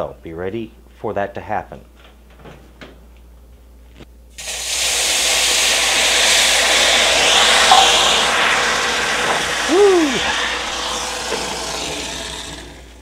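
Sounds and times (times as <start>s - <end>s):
water hissing and sizzling in hot pan: 4.3s - 13.0s.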